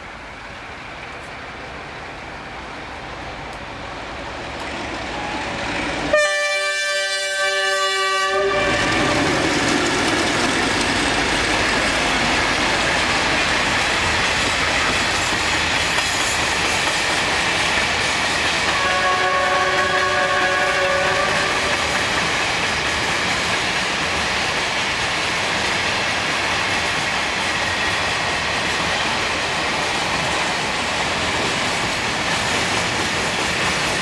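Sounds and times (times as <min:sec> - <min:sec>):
diesel locomotive horn blast: 0:06.1 - 0:09.4, 0:18.7 - 0:21.9
freight wagons rolling past: 0:08.4 - 0:24.8.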